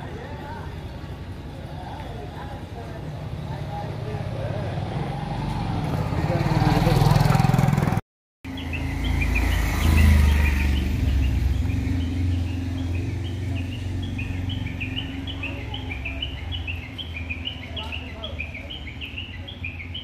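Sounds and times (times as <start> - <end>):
small birds chirping: 8.5 - 20.0.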